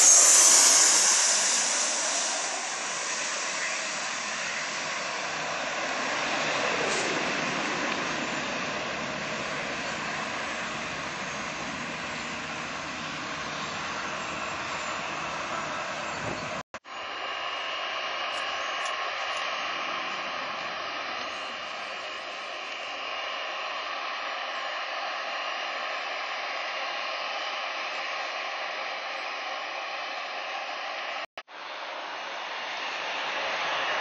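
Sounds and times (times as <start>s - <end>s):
thin whining tones: 0.0s - 8.6s
jet engines roaring: 0.0s - 34.0s.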